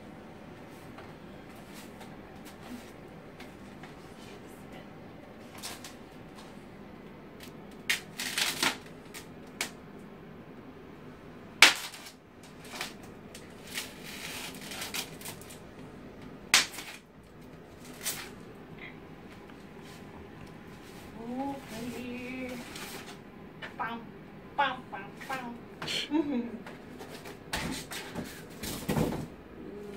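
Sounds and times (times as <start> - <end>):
polystyrene foam scraping: 11.8 - 15.6.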